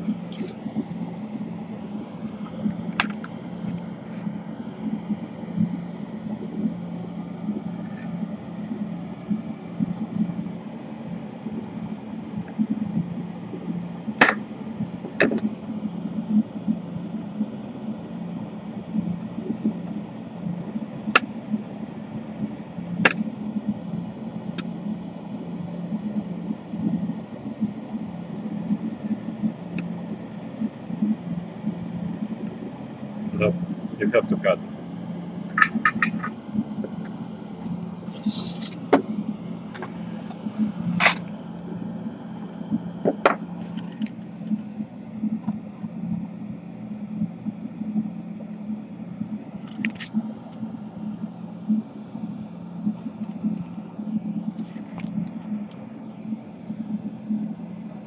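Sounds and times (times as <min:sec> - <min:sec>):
steady low hum: 0:00.0 - 0:58.0.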